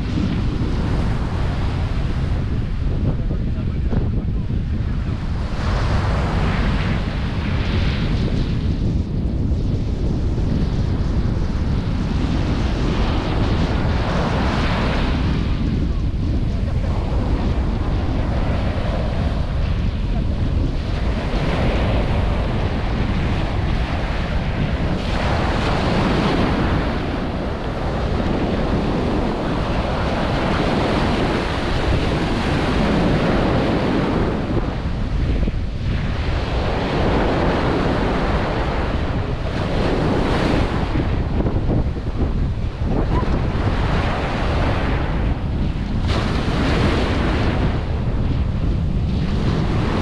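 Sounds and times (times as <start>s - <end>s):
wind buffeting microphone: 0.0s - 50.0s
small waves breaking on sand: 20.8s - 50.0s.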